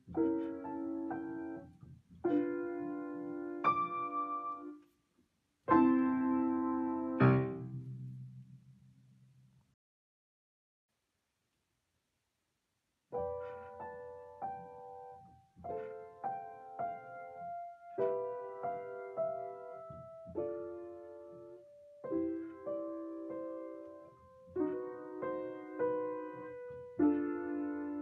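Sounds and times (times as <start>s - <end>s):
solo piano chords: 0.0s - 4.8s, 5.7s - 8.8s, 13.1s - 28.0s.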